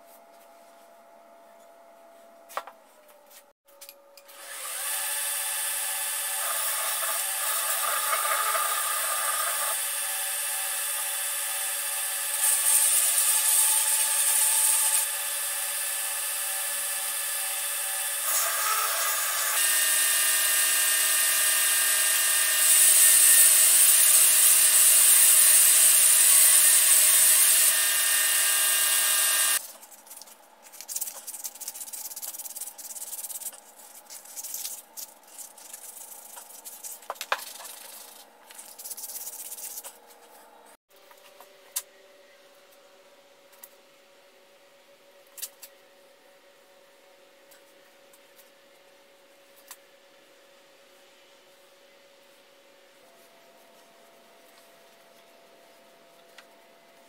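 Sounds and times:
belt grinder whining: 4.4s - 29.6s.

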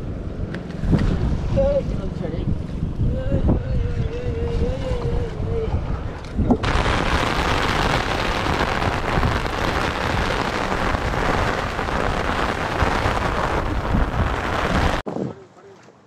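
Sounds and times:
wind buffeting microphone: 0.0s - 15.5s.

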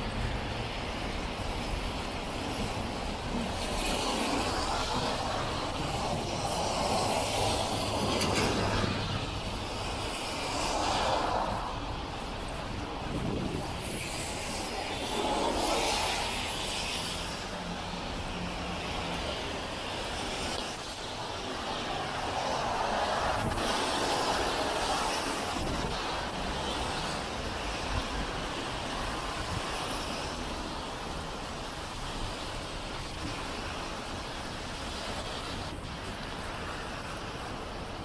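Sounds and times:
low traffic rumble: 0.0s - 38.0s
tyre hiss on wet street: 0.0s - 38.0s.

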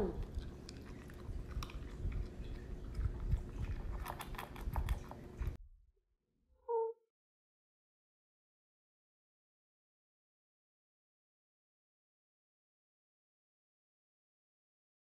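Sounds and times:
dog chewing: 0.0s - 5.6s.

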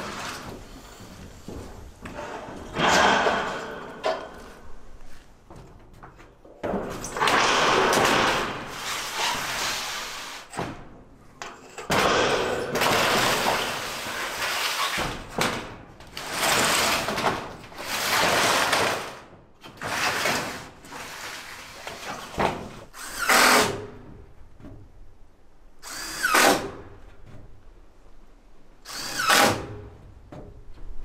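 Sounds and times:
sheet metal panels scraping and rattling: 0.0s - 4.9s, 6.4s - 10.6s, 11.4s - 22.9s.

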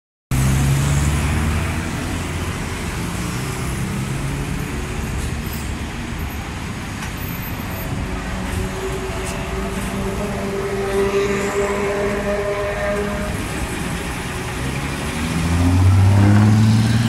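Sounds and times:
bus engine hum: 0.3s - 17.0s
motorcycles passing: 7.8s - 17.0s.

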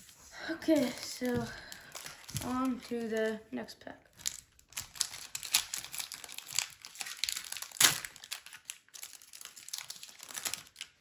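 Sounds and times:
wrapper tearing and crinkling: 0.7s - 3.4s, 4.1s - 11.0s.

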